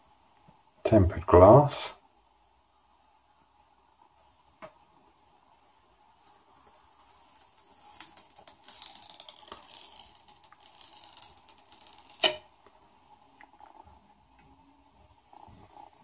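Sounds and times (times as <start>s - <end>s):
screen protector peeling crackle: 6.2s - 12.4s.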